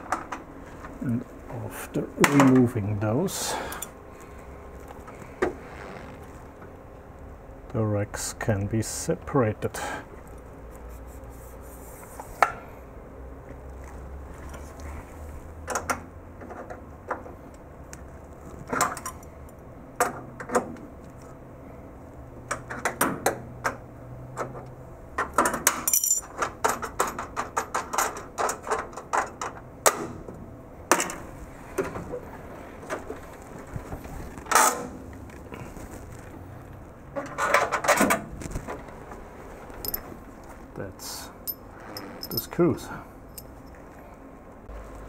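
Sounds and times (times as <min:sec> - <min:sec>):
metal clinks: 0:25.9 - 0:26.3, 0:39.8 - 0:40.1, 0:41.5 - 0:42.6, 0:43.3 - 0:43.8.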